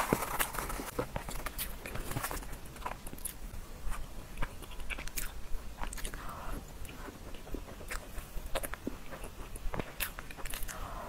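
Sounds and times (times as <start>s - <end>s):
paper box handling: 0.0s - 2.5s.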